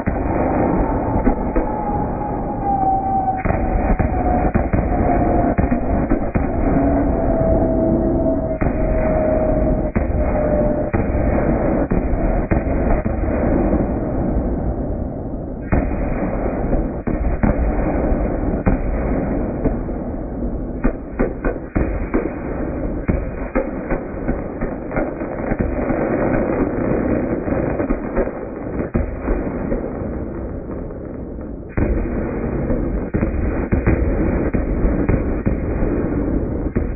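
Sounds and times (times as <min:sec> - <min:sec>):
sharp firework pops: 0:00.0 - 0:02.0, 0:03.3 - 0:07.0, 0:08.5 - 0:13.9, 0:15.6 - 0:20.0, 0:20.8 - 0:36.9
fireworks bursts and crackle: 0:00.0 - 0:36.9.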